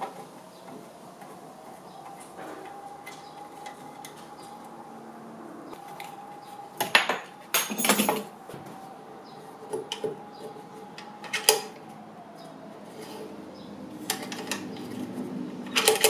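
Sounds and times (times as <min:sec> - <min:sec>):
metal hardware clinking: 0:06.8 - 0:08.3.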